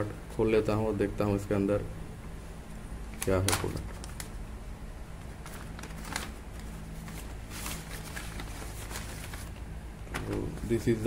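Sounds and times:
steady low hum: 0.0 - 11.0
plastic packaging crinkling: 3.2 - 4.4, 5.2 - 10.8.

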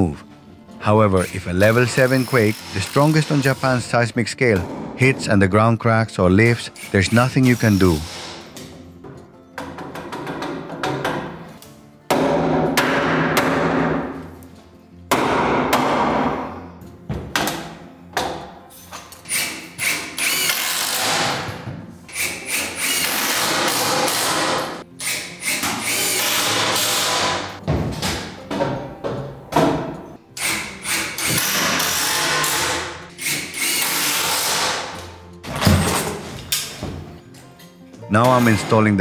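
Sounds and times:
cordless driver driving screws: 19.2 - 21.3, 22.1 - 27.4, 30.4 - 35.1.

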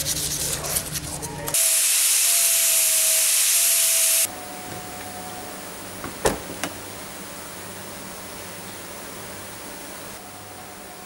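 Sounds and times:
loud steady hiss: 1.6 - 11.0
faint steady hum: 4.2 - 11.0.

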